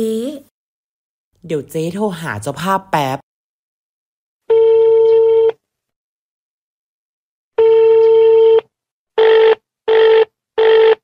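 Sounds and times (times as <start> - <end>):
telephone ringback tone: 4.5 - 5.6, 7.6 - 11.0.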